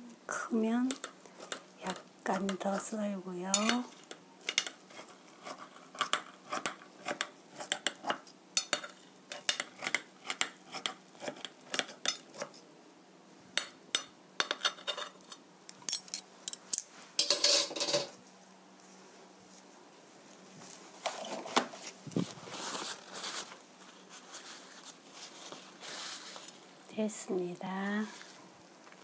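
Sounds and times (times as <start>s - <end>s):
scraping rustle: 20.3s - 26.6s.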